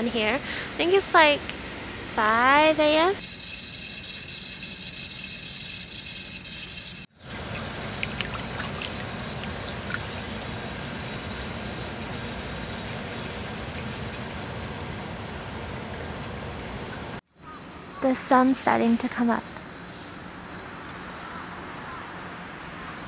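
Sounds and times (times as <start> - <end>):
water flowing and trickling: 3.2 - 15.8.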